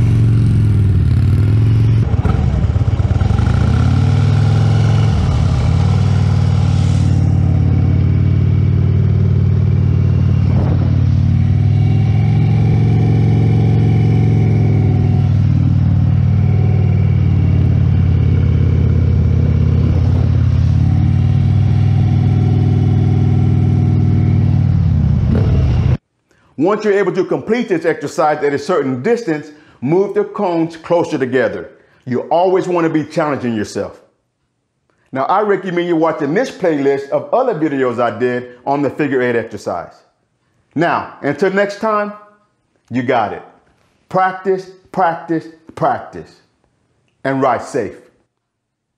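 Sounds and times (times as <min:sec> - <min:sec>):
motorcycle engine at low revs: 0:00.0 - 0:26.0.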